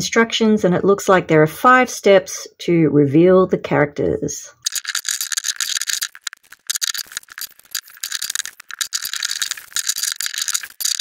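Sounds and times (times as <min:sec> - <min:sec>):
plastic wrap crinkling: 0:04.6 - 0:11.0.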